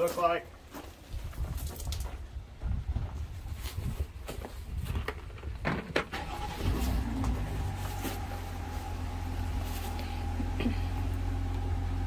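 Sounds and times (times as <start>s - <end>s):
car engine idling: 6.2s - 12.0s.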